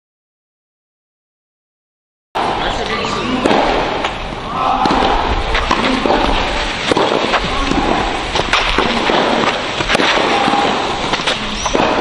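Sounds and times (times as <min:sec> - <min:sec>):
rackets striking tennis balls: 0:02.4 - 0:12.0
steady background noise: 0:02.4 - 0:12.0.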